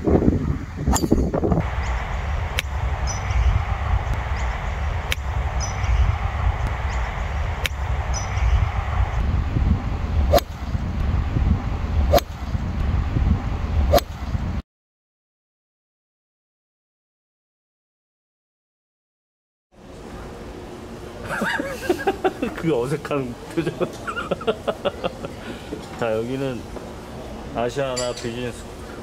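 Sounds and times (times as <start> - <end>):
wind rumble on microphone: 0.0 - 14.6
golf club striking ball: 0.9 - 3.4, 4.1 - 5.9, 10.3 - 10.7, 12.1 - 12.5, 13.9 - 14.2.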